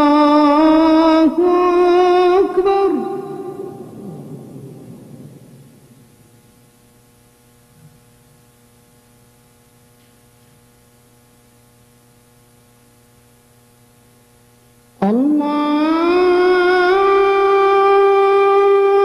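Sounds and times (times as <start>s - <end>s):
amplified call to prayer singing: 0.0s - 6.0s, 15.0s - 19.0s
electrical mains hum: 0.0s - 19.0s.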